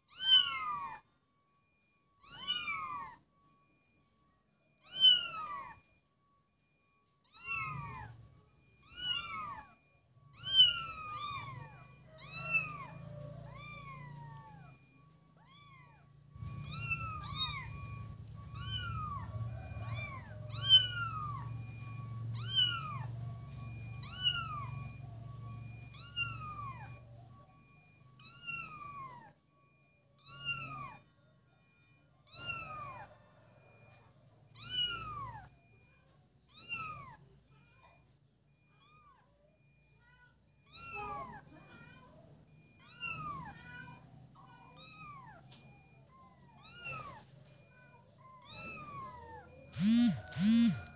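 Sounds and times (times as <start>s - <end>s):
kitten meowing: 0.1s - 1.0s, 2.2s - 3.2s, 10.3s - 14.7s, 18.6s - 24.9s, 34.6s - 35.5s, 46.5s - 47.2s, 48.4s - 50.9s.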